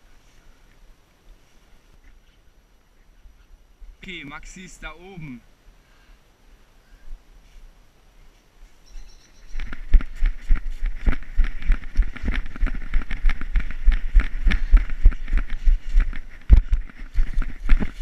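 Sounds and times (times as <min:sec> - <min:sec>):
leaves rustling: 0:00.0 - 0:18.0
running footsteps on grass: 0:08.3 - 0:18.0.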